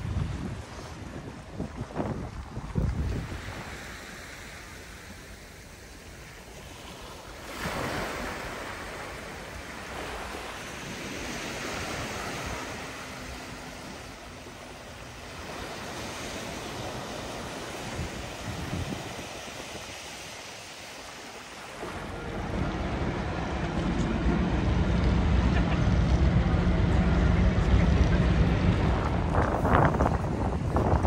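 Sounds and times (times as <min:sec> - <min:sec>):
wind buffeting microphone: 0:00.0 - 0:04.9, 0:07.6 - 0:20.6, 0:21.7 - 0:31.0
waves washing over pebbles: 0:01.1 - 0:25.2.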